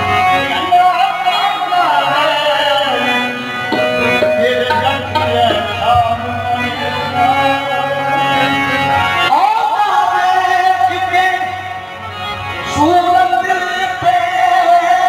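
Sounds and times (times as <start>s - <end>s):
harmonium melody: 0.0s - 15.0s
tabla drumming: 3.7s - 6.6s.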